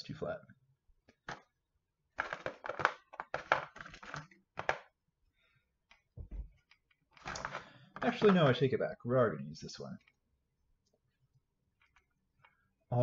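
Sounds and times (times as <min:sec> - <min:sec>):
soft low thump: 0:06.2 - 0:06.6
small stones clattering on table: 0:07.1 - 0:08.5.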